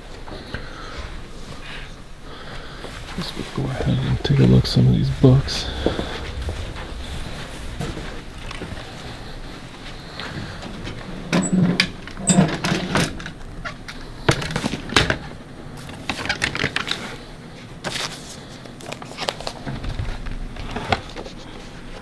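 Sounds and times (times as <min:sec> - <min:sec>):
paper rustling: 0:16.0 - 0:21.8.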